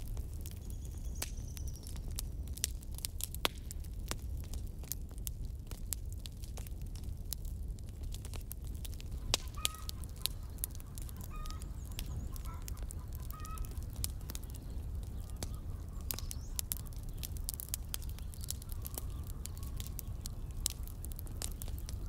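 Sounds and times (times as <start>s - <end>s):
wood fire crackling: 0.0s - 22.0s
chickens calling: 9.1s - 22.0s.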